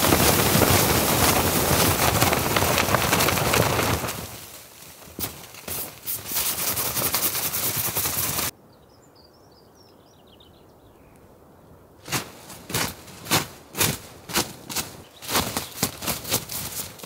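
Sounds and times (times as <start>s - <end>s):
footsteps crunching in snow: 0.0s - 8.5s, 12.0s - 17.0s
ice and snow clattering off tarp: 0.0s - 8.5s, 12.1s - 17.0s
small bird chirping: 8.7s - 11.2s.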